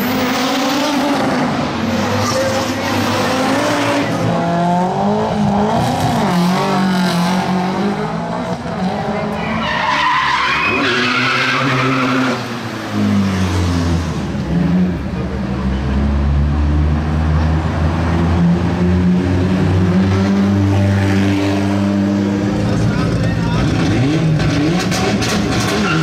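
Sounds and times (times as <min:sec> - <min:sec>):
tyres squealing: 0:09.4 - 0:12.4.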